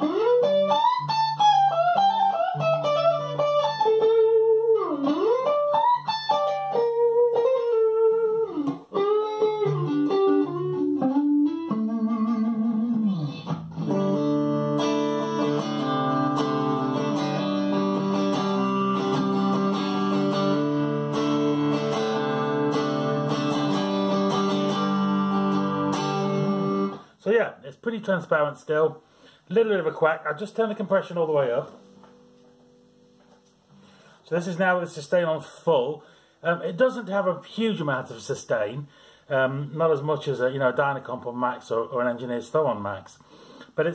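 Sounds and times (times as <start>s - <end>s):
guitar string bends: 0.0s - 27.1s
strummed guitar chords: 0.0s - 27.1s
clean electric guitar: 0.0s - 27.2s, 31.0s - 34.6s.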